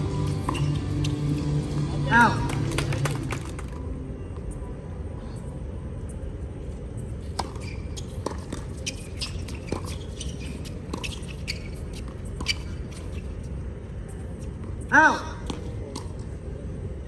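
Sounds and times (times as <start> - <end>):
sneakers squeaking on court: 0.0 - 1.9, 7.2 - 13.6.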